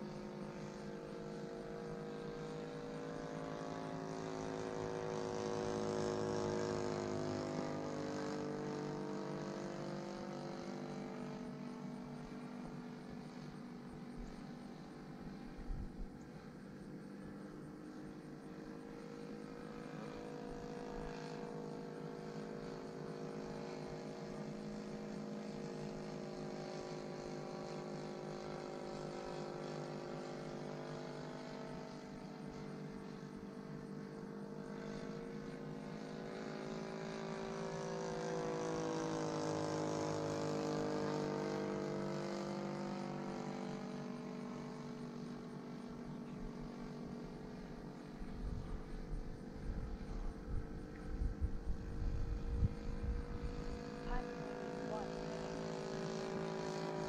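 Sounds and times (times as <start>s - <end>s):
model airplane engine droning: 0.0s - 57.0s.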